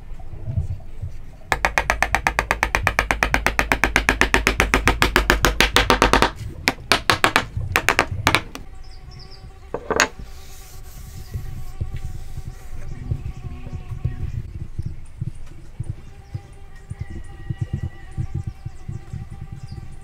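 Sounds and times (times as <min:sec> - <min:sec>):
hammer tapping wood: 0:01.5 - 0:08.6, 0:09.8 - 0:10.1.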